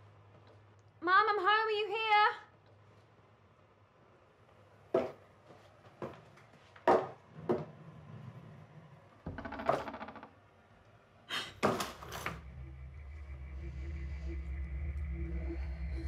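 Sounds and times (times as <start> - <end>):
sharp knocks and clicks: 9.3 - 10.4
low steady drone: 12.3 - 16.0.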